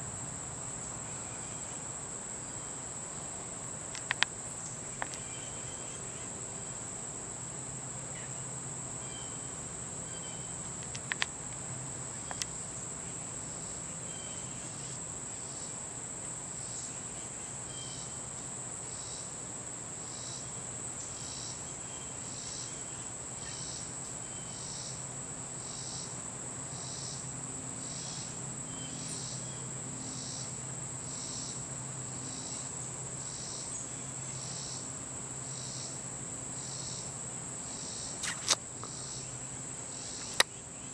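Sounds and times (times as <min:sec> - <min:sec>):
insect chirp: 0:00.0 - 0:40.9
insects trilling: 0:00.0 - 0:40.9
sharp clicks: 0:03.9 - 0:04.3, 0:10.8 - 0:11.3, 0:38.2 - 0:38.6, 0:40.2 - 0:40.5.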